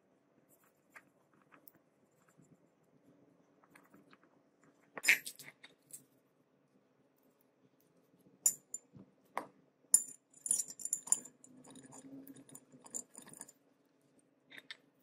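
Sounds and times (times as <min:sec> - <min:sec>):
metal parts clinking: 0:05.0 - 0:05.5.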